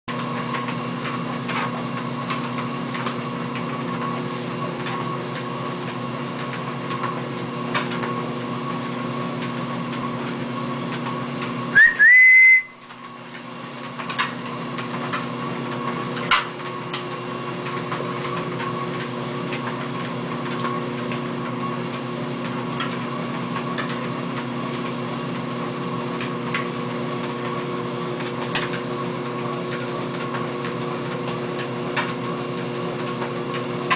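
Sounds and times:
treadmill humming: 0:00.1 - 0:33.9
rising whistle: 0:11.8 - 0:12.8.

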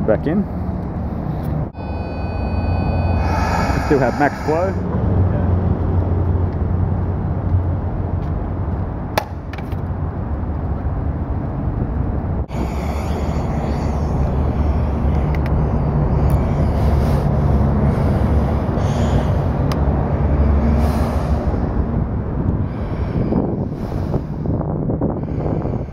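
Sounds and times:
outdoor background rumble: 0:00.0 - 0:25.9
wind on microphone: 0:11.4 - 0:25.9.

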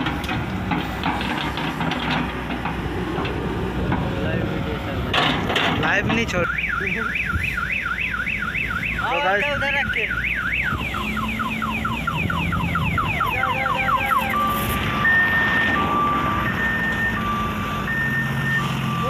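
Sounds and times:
truck engine running: 0:00.0 - 0:19.0
vehicle alarm siren: 0:06.3 - 0:19.0.

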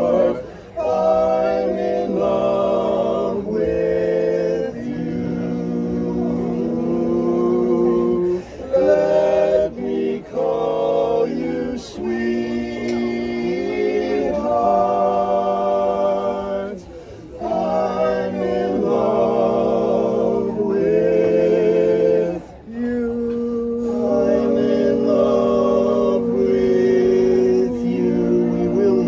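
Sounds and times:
men singing in close harmony: 0:00.0 - 0:29.0.

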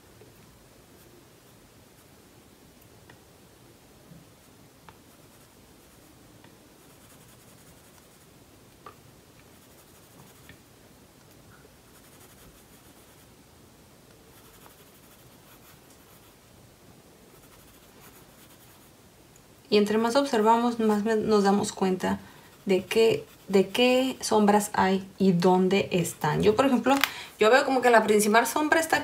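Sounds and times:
pencil scratching on paper: 0:05.1 - 0:06.1, 0:06.8 - 0:08.3, 0:09.5 - 0:10.5, 0:11.9 - 0:13.3, 0:14.3 - 0:16.4, 0:17.3 - 0:18.9, 0:20.7 - 0:24.6.

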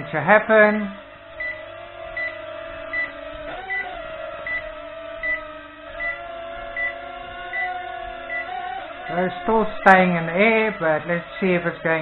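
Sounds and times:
drone motors whining: 0:00.0 - 0:12.0
low-battery alarm beeps: 0:01.3 - 0:06.2, 0:06.8 - 0:08.7.

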